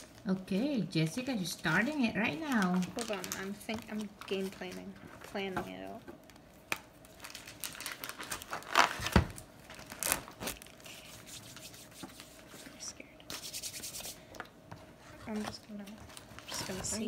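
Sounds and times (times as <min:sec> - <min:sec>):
plastic packaging crinkling: 0:01.2 - 0:12.4.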